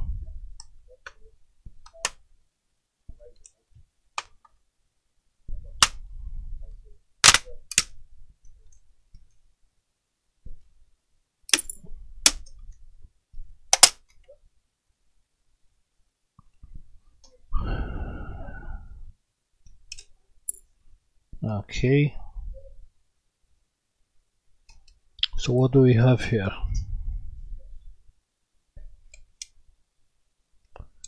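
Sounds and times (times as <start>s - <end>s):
plastic clips snapping: 7.2s - 7.9s, 13.7s - 14.2s.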